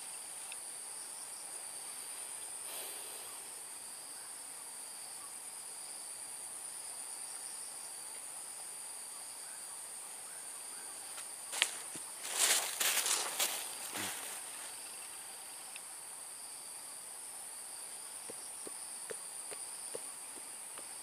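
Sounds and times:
crickets chirping: 0.0s - 21.0s.

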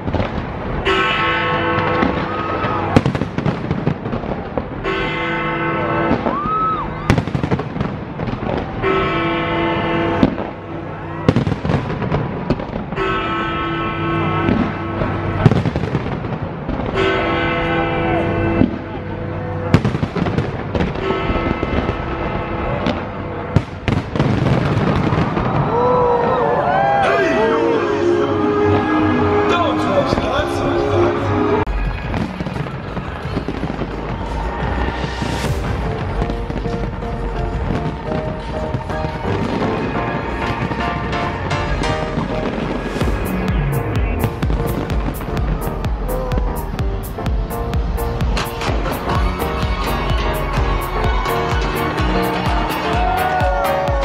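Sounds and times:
fireworks crackling and banging: 0.0s - 27.4s, 31.6s - 54.0s
music with long held chords: 27.1s - 54.0s.

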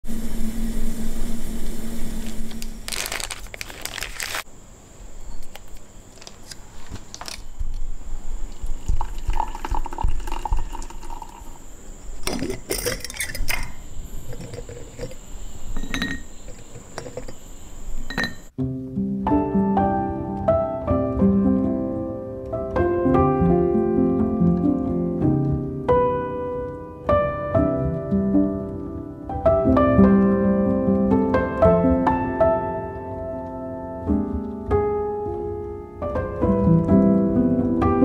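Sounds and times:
hot water pouring into mug: 8.7s - 11.6s
metal kettle and crockery clinking: 12.2s - 15.2s, 15.8s - 17.4s, 18.1s - 18.5s.

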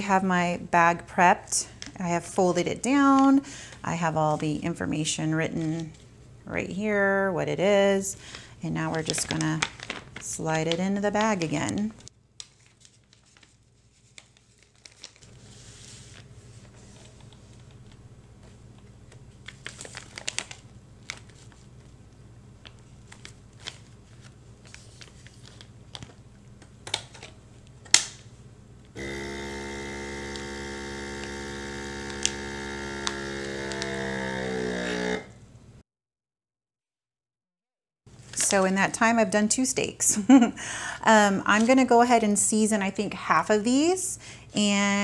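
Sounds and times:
plastic bag crinkling: 8.2s - 18.0s, 19.3s - 22.0s, 22.6s - 26.2s
vacuum sealer click: 29.0s - 34.1s
vacuum sealer pump humming: 29.0s - 35.5s.

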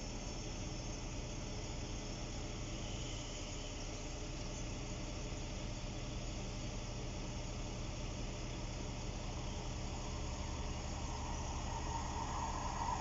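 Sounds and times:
constant hiss: 0.0s - 13.0s
engine humming: 7.7s - 13.0s.

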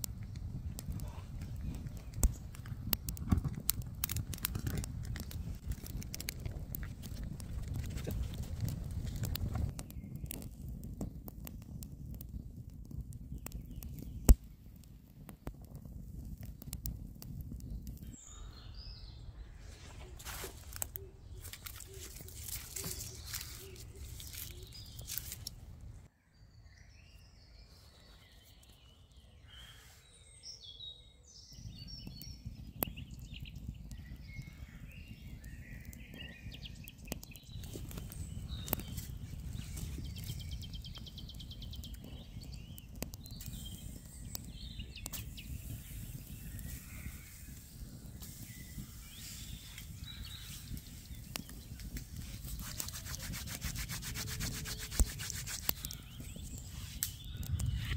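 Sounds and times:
clicks and rustles: 0.0s - 9.8s, 20.0s - 25.6s
small birds chirping: 0.0s - 12.4s, 13.1s - 14.6s, 17.5s - 57.9s.

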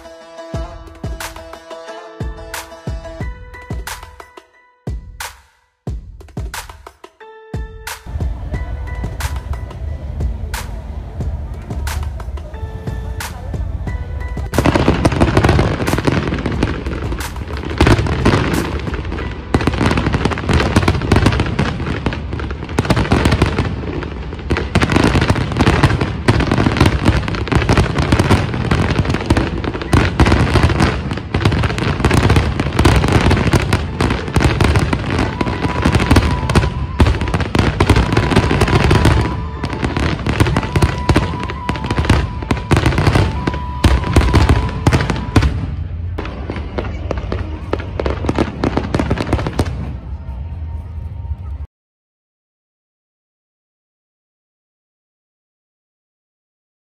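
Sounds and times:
fireworks bangs and crackles: 8.0s - 51.7s.

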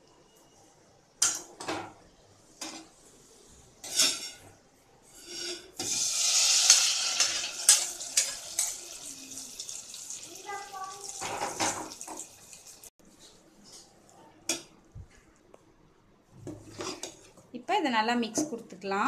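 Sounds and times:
metal tongs clanking on pan: 1.2s - 1.8s, 3.8s - 4.4s, 6.6s - 9.0s
spoon scraping and stirring: 3.8s - 8.8s, 16.6s - 17.4s
hot ghee sizzling: 5.2s - 12.9s.

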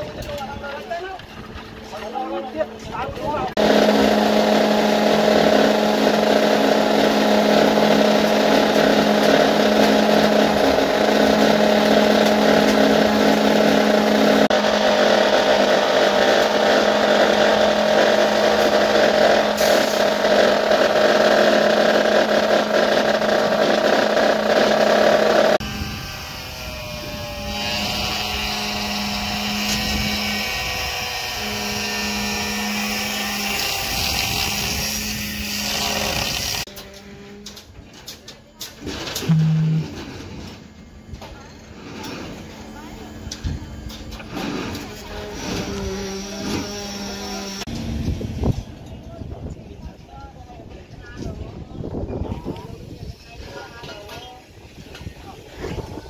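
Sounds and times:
machinery noise: 1.2s - 37.8s, 38.8s - 49.0s
concrete vibrator humming: 2.0s - 37.5s, 39.2s - 40.1s.

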